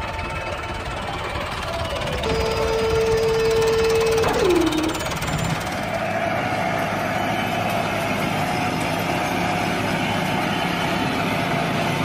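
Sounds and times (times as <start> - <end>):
toy excavator motor humming: 0.1 - 5.9.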